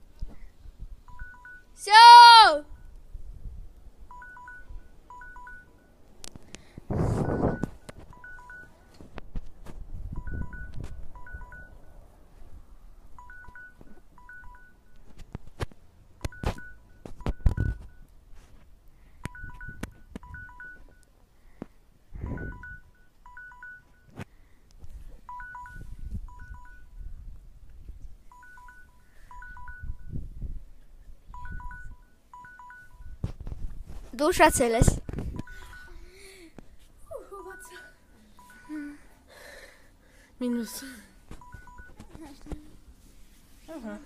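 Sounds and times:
two-tone electronic beeps: 1.1s - 1.8s, 4.1s - 6.0s, 7.1s - 9.1s, 10.1s - 11.9s, 13.2s - 15.1s, 16.2s - 18.1s, 19.2s - 21.1s, 22.2s - 24.2s, 25.3s - 27.0s, 28.3s - 30.2s, 31.3s - 33.2s, 34.4s - 36.1s, 37.3s - 39.0s, 40.5s - 42.4s.

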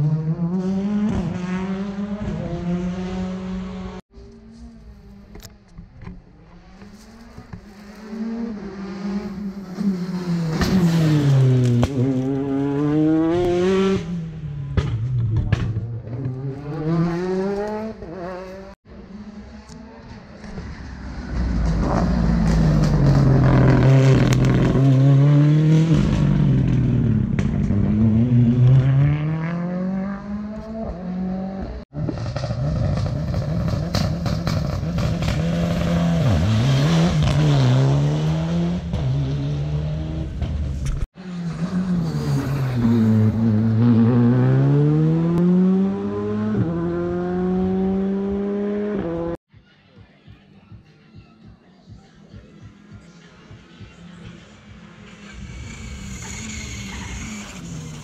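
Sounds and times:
rally car engines revving: 0.0s - 49.4s, 53.0s - 58.0s.

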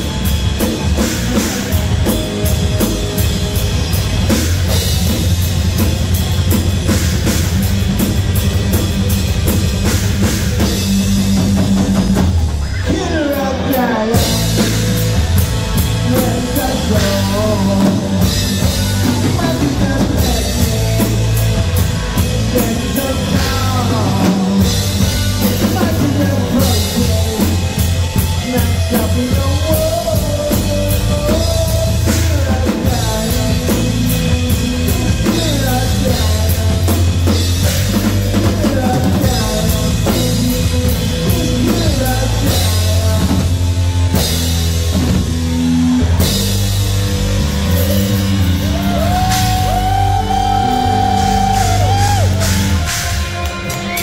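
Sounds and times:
bass guitar: 0.0s - 54.0s
drum kit: 0.0s - 54.0s
electric guitar: 0.0s - 54.0s
lead singer's voice: 10.6s - 44.4s, 47.3s - 54.0s.

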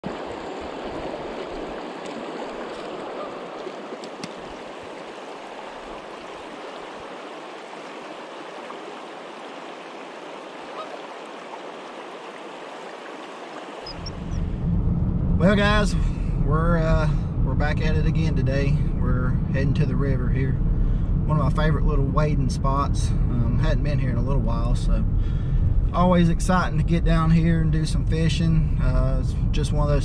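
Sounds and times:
river current rushing: 0.0s - 14.5s.

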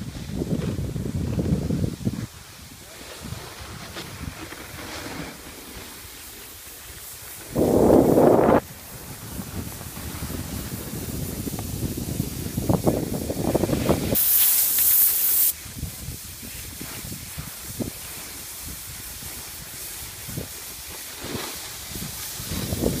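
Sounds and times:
wind buffeting microphone: 0.0s - 4.8s, 7.4s - 14.2s, 21.7s - 23.0s
gliding on snow: 0.0s - 23.0s
soft scrapes on snow: 0.0s - 23.0s
ski edge skidding on snow: 0.1s - 23.0s.

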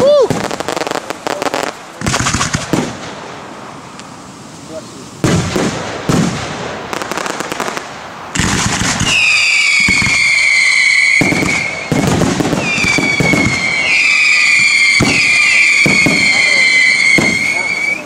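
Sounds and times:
firework bangs: 0.0s - 3.9s, 5.2s - 18.0s
firework crackling: 0.0s - 18.0s
firework whistles: 5.3s - 18.0s.

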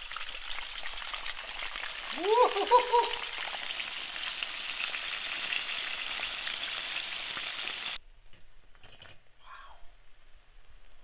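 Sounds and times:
food deep-frying in oil: 0.0s - 8.0s.

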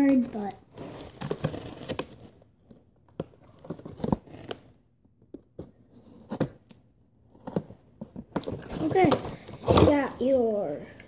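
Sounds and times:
cardboard and plastic packaging rustling: 0.0s - 4.8s, 7.3s - 10.7s.

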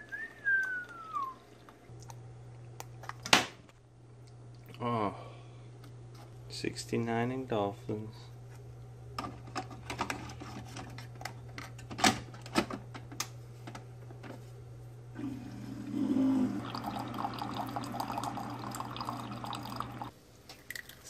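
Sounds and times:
coffee streaming into mug: 15.2s - 21.0s.

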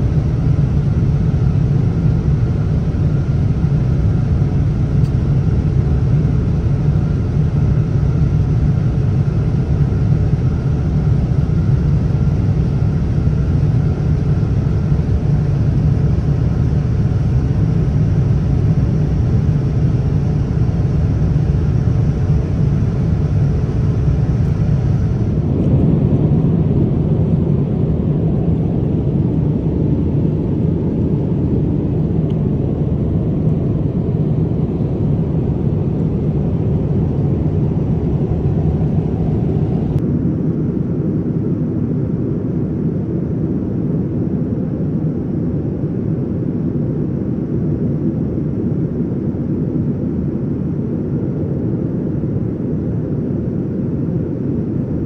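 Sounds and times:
airliner cabin rumble: 0.0s - 55.0s.

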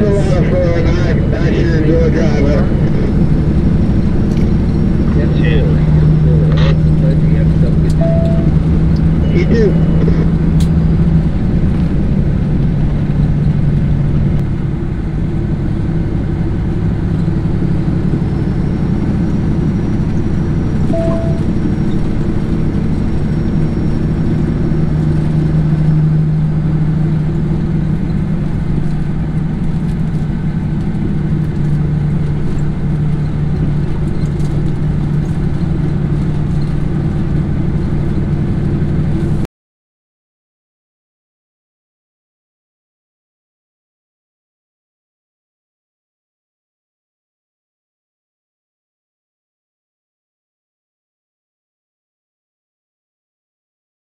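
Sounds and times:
diesel engine hum: 0.0s - 39.5s
road noise: 0.0s - 39.5s.

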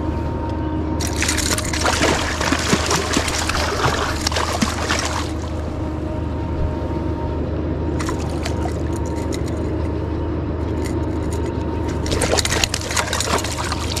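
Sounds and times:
fish thrashing and splashing: 1.0s - 5.8s, 8.0s - 9.5s, 11.9s - 14.0s.

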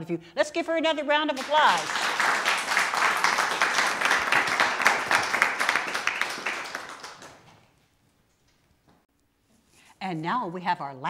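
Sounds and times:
people clapping: 1.3s - 7.6s.

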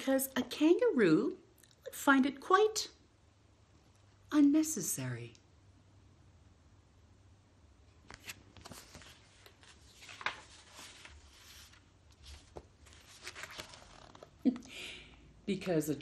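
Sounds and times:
book pages turning: 8.0s - 14.4s.

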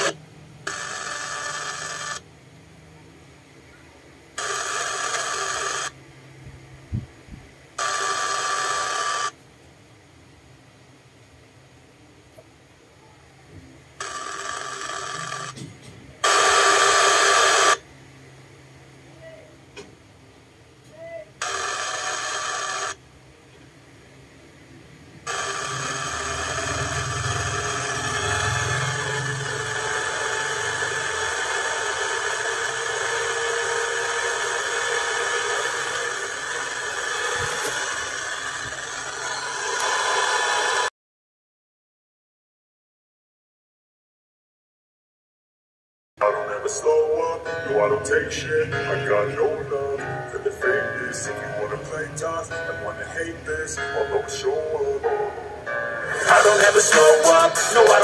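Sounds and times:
radio static hiss: 0.0s - 2.2s, 4.3s - 6.0s, 7.8s - 9.4s, 14.0s - 17.8s, 21.4s - 23.0s, 25.2s - 40.9s, 56.1s - 58.0s
speaker ringing bursts: 25.3s - 38.6s, 46.3s - 58.0s.

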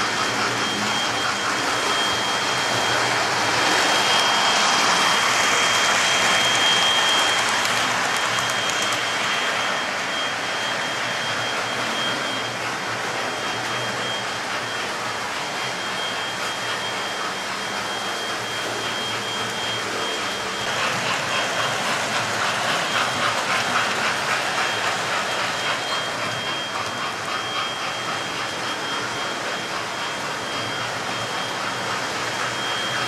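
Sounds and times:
thin high whine: 0.0s - 33.0s
model train motors whirring: 2.8s - 10.6s.

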